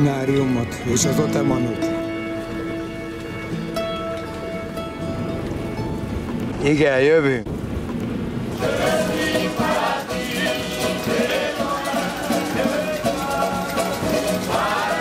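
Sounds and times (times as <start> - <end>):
strummed guitar: 0.0 - 6.6, 8.6 - 15.0
voices singing in harmony: 8.5 - 15.0.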